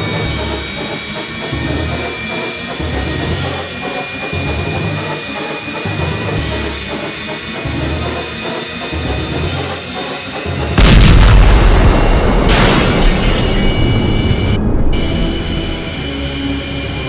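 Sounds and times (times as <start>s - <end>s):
explosion sound effect: 10.8s - 15.2s.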